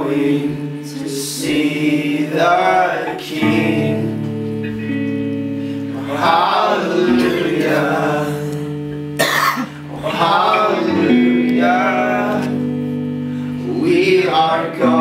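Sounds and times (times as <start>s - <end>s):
electric guitar chords: 0.0s - 15.0s
cough: 9.2s - 9.8s
man singing gospel: 9.9s - 12.7s, 13.6s - 15.0s.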